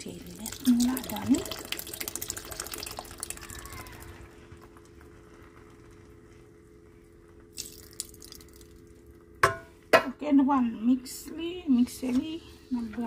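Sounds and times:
milk fizzing in hot pan: 0:00.0 - 0:04.3, 0:07.5 - 0:09.0
faint steady hum: 0:00.0 - 0:13.0.

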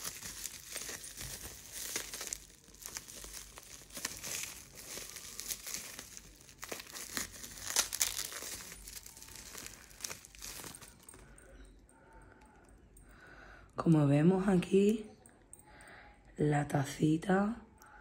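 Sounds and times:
bubble wrap crinkling: 0:00.0 - 0:11.8.

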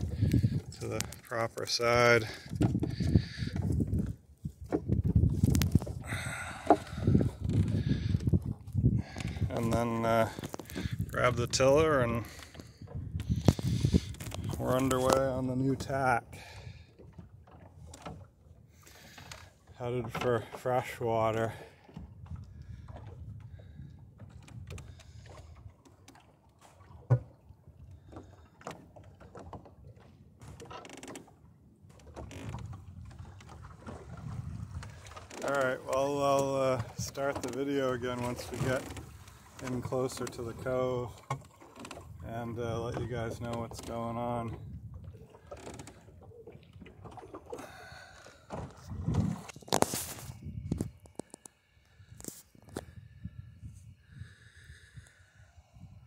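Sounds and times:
wind noise: 0:00.0 - 0:01.3, 0:02.2 - 0:15.2, 0:32.2 - 0:35.3, 0:44.4 - 0:45.5, 0:48.6 - 0:51.3, 0:52.0 - 0:56.0
wind and water rushing: 0:00.0 - 0:51.3
sailboat rigging knocks and creaks: 0:00.0 - 0:53.2.

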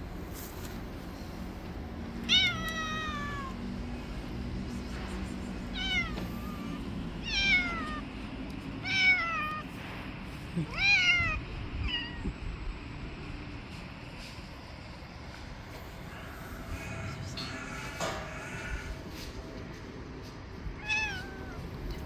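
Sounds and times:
cat meowing: 0:02.2 - 0:03.6, 0:05.7 - 0:08.1, 0:08.8 - 0:09.7, 0:10.7 - 0:12.4, 0:20.8 - 0:22.0.

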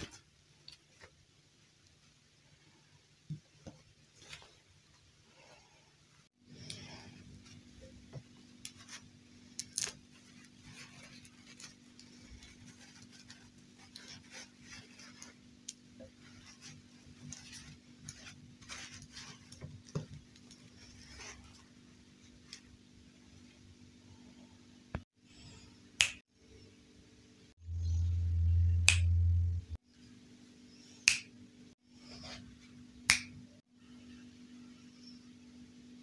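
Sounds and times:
rustling of doll dresses: 0:00.0 - 0:23.8.

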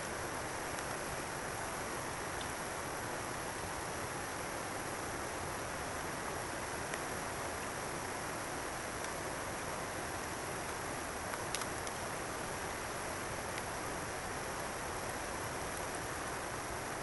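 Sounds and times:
faint clicks: 0:11.3 - 0:12.1.

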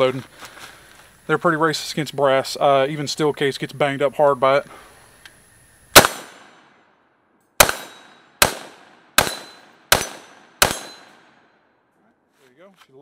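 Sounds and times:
rifle shots echoing: 0:06.0 - 0:06.9, 0:07.6 - 0:11.7.

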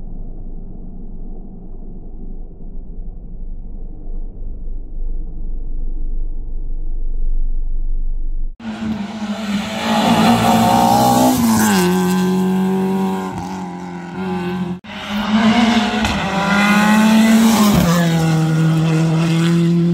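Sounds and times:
rally car engine at high revs: 0:08.6 - 0:19.9.

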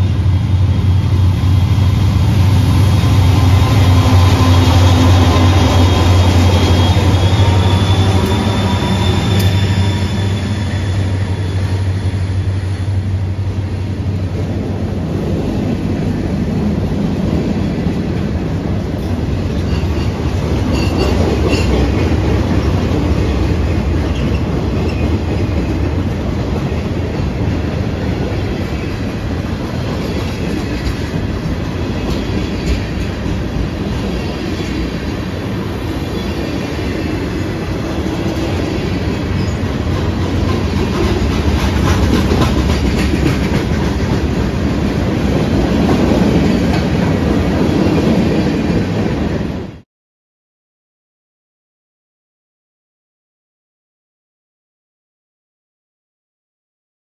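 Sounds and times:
high wheel squeals: 0:03.2 - 0:12.7
freight train wheels clattering: 0:19.0 - 0:27.7, 0:36.2 - 0:49.0.

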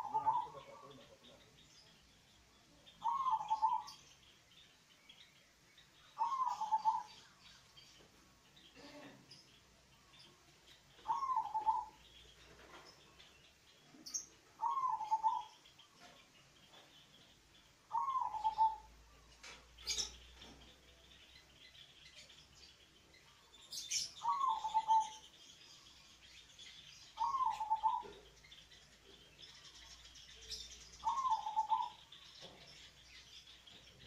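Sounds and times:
dove cooing: 0:00.0 - 0:01.0, 0:03.0 - 0:04.0, 0:06.2 - 0:07.2, 0:11.0 - 0:12.0, 0:14.6 - 0:15.6, 0:17.9 - 0:18.9, 0:23.9 - 0:25.2, 0:27.2 - 0:28.2, 0:31.0 - 0:32.1.

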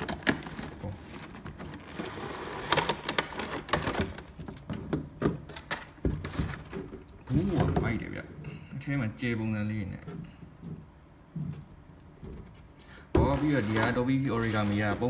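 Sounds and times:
plastic packaging crackling: 0:00.0 - 0:04.7, 0:13.2 - 0:15.0
plastic rustling: 0:00.0 - 0:08.2, 0:10.0 - 0:15.0.

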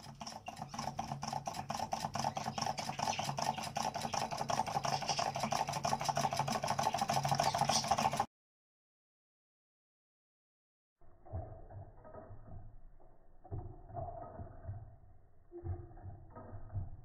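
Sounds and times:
motor mechanical clicking: 0:00.0 - 0:08.3.

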